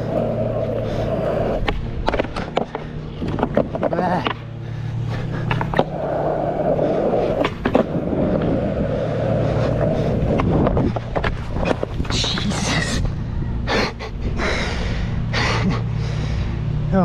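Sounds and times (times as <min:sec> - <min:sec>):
skateboard wheels rolling on asphalt: 0:00.0 - 0:14.4
skateboard clacking on ground: 0:00.1 - 0:04.5, 0:05.4 - 0:08.6.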